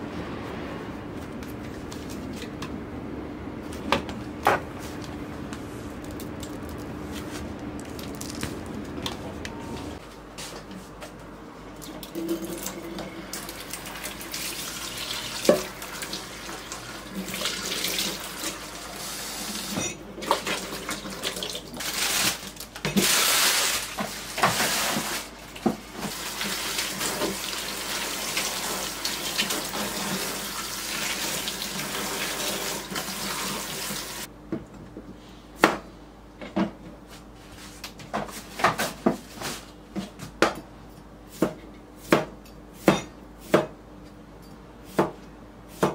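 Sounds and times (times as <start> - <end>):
tap water running into sink: 25.6 - 34.2.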